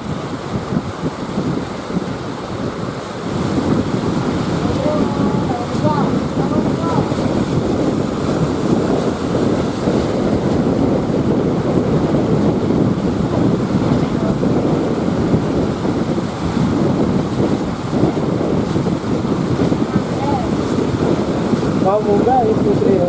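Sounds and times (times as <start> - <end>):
waves breaking against rocks: 0.0 - 23.0
wind buffeting microphone: 0.0 - 23.0.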